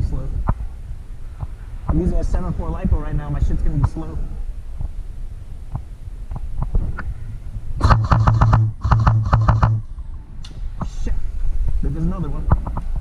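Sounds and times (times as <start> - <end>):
airsoft gun full-auto bursts: 7.8 - 9.8.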